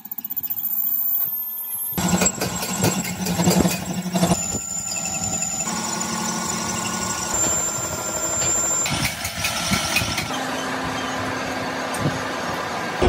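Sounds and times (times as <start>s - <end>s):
high thin cutting whine: 3.8s - 10.4s
metal lathe humming: 4.1s - 9.0s.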